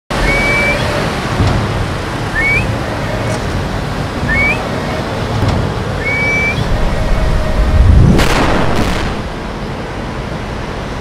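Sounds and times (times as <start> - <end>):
high rising squeaks: 0.1 - 1.3, 2.2 - 9.2
steady rushing noise: 0.1 - 11.0.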